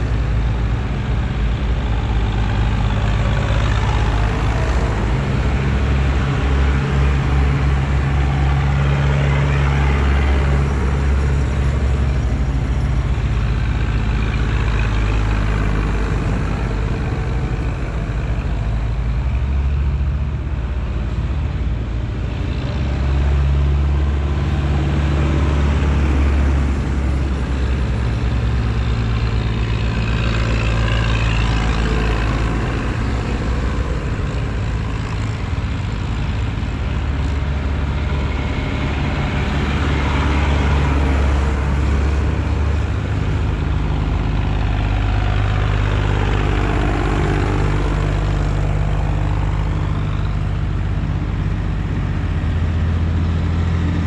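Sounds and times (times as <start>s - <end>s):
tractor diesel engines passing: 0.0s - 54.0s.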